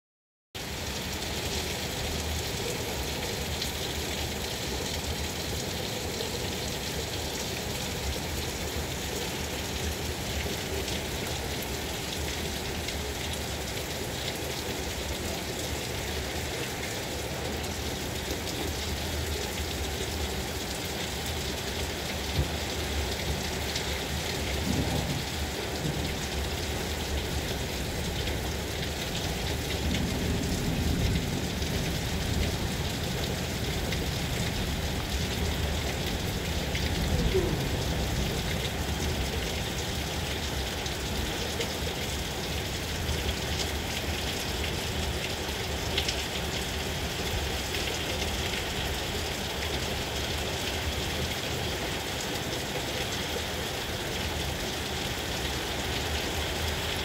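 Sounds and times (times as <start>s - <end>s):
heavy rain falling: 0.6s - 57.0s.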